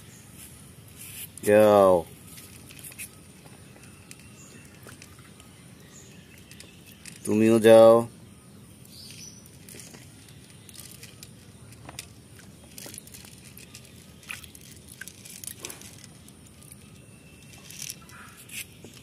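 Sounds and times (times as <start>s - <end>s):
soft water splashes and drips: 13.6s - 16.0s.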